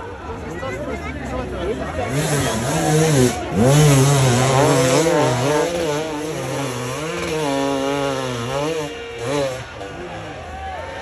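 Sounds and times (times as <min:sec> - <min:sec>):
motorcycle engine revving hard: 0:02.0 - 0:09.9.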